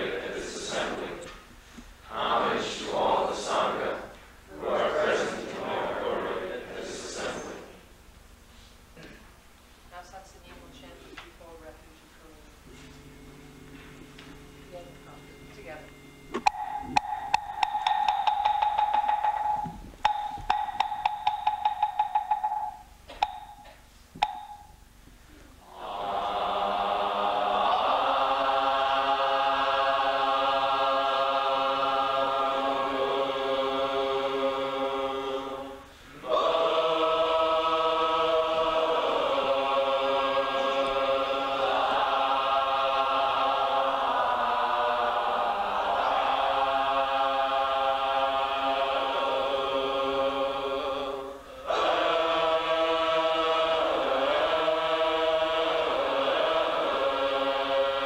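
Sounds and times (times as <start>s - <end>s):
group chanting: 0.0s - 1.3s, 2.0s - 7.9s, 16.4s - 23.6s, 25.6s - 58.0s
wooden temple block struck: 16.4s - 24.8s.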